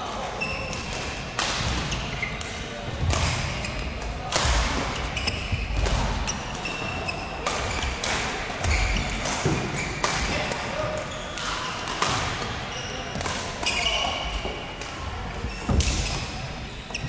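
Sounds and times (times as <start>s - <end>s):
rackets hitting shuttlecock: 0.7s - 14.2s
shoes squeaking on court floor: 1.8s - 4.2s, 4.8s - 17.0s.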